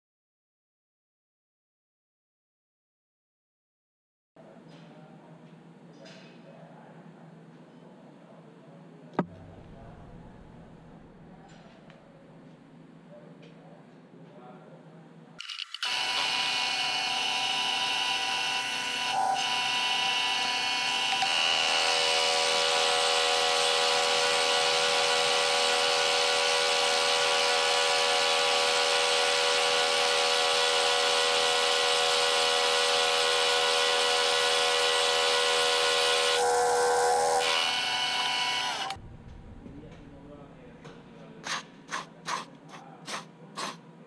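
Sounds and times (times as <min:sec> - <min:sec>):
milling machine cutting metal: 0:15.4 - 0:39.0.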